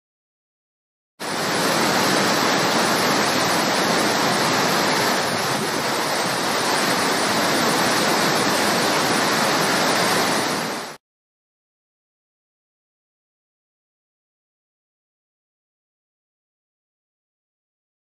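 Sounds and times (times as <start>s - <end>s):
waterfall rushing: 1.2s - 11.0s.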